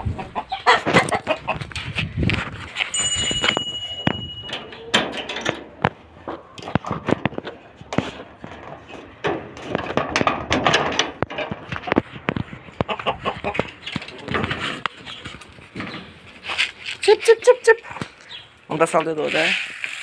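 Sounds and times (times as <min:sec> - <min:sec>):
bell-like chime: 0:02.9 - 0:04.9.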